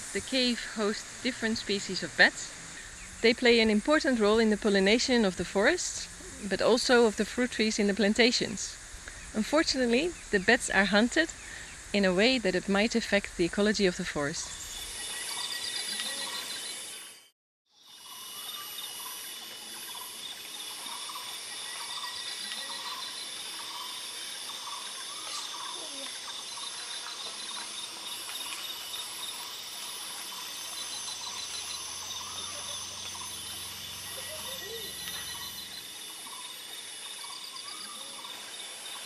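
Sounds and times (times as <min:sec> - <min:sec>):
insects chorus with pulsing trill: 0:00.0 - 0:39.0
birds calling: 0:30.2 - 0:36.6.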